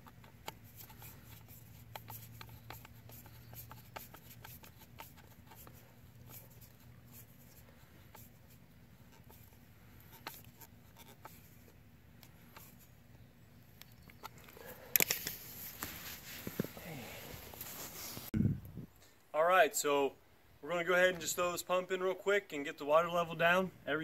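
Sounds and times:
hose clamp screw clicking and scratching: 0.0s - 13.0s, 13.7s - 16.8s.

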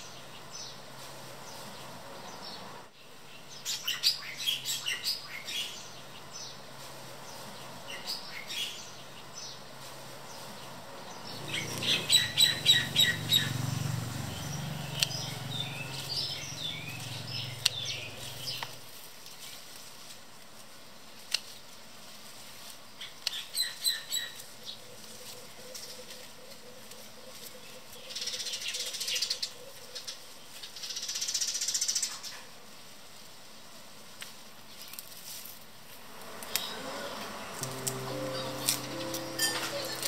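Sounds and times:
small birds chirping: 0.0s - 19.6s, 36.4s - 40.0s.

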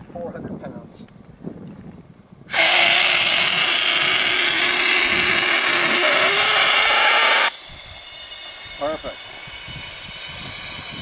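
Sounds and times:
gas hissing from a cylinder: 2.5s - 11.0s.

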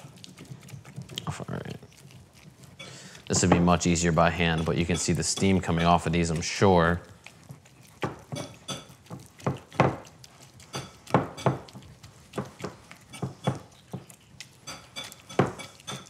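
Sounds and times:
ladle clinking against a bowl: 2.8s - 6.1s, 14.6s - 16.0s.

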